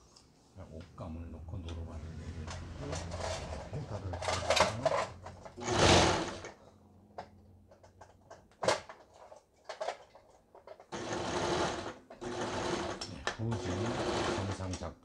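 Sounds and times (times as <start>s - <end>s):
sewing machine stitching: 2.4s - 6.6s, 10.8s - 14.9s
sewing machine clicks: 10.8s - 14.9s.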